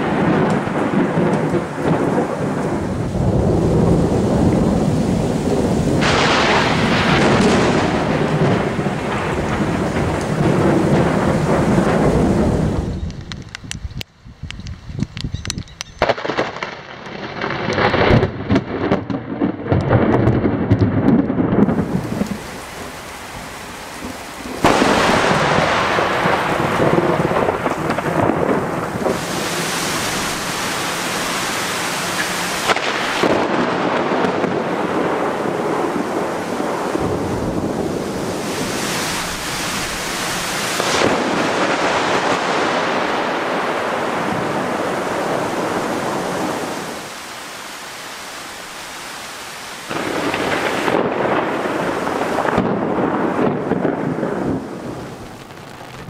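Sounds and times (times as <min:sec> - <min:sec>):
heavy rain hissing: 0:00.0 - 0:15.3, 0:21.6 - 0:56.0
thunder cracking and rumbling: 0:00.0 - 0:47.1, 0:49.9 - 0:56.0.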